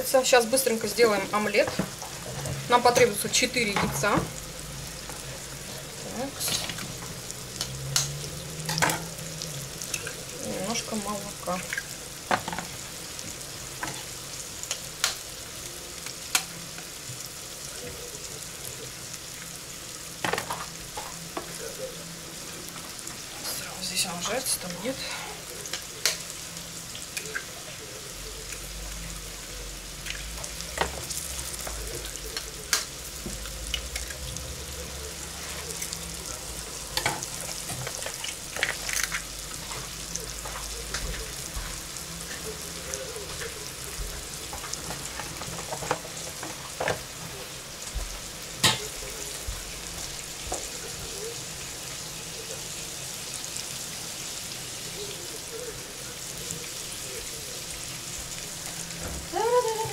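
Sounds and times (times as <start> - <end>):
fish sizzling in oil: 0.0 - 59.9
kitchen utensils clinking: 0.6 - 4.4, 6.2 - 9.2.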